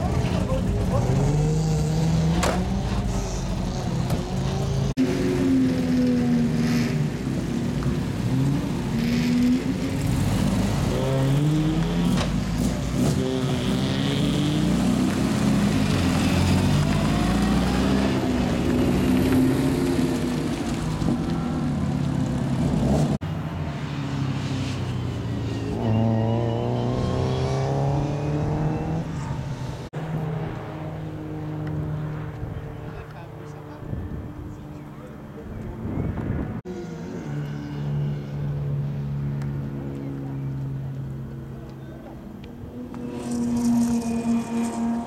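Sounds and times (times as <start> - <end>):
race car engines revving: 0.0 - 45.0.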